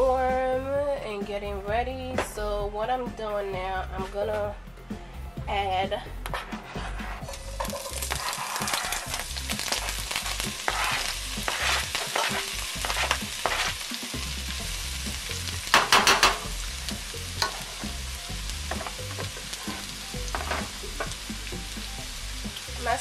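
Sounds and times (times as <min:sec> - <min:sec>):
scraping and stirring in pan: 0:06.2 - 0:13.9, 0:17.4 - 0:18.0, 0:18.7 - 0:21.2
vegetables sizzling in frying pan: 0:07.2 - 0:23.0.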